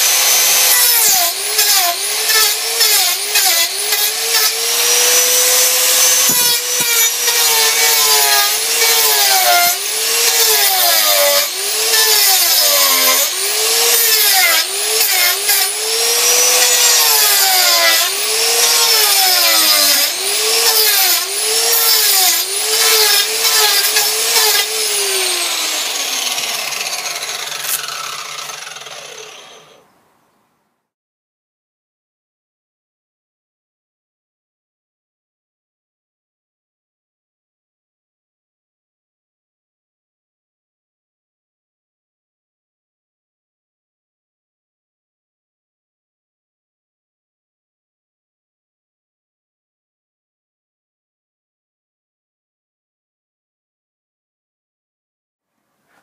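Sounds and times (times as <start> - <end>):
angle grinder cutting wood: 0.0 - 29.9.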